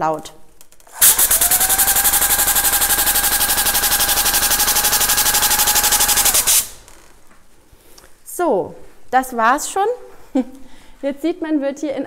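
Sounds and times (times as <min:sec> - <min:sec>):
steady machine whine: 0:01.0 - 0:07.0.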